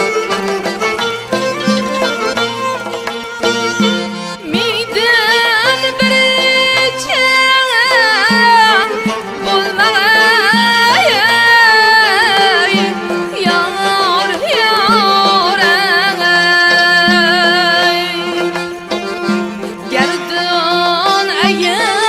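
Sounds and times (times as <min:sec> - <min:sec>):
long-necked lute: 0:00.0 - 0:22.0
small traditional ensemble: 0:00.0 - 0:22.0
woman singing ornamented voice: 0:04.4 - 0:18.7, 0:19.8 - 0:22.0.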